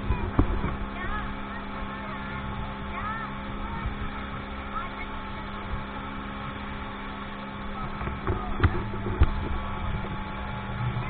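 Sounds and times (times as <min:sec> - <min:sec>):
speedboat motor running: 0:00.0 - 0:11.0
sharp thumps: 0:07.9 - 0:10.2.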